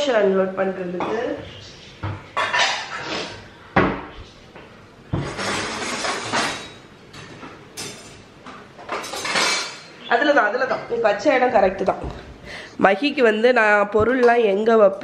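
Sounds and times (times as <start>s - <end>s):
dishes and utensils clinking: 2.0s - 4.1s, 5.1s - 10.0s.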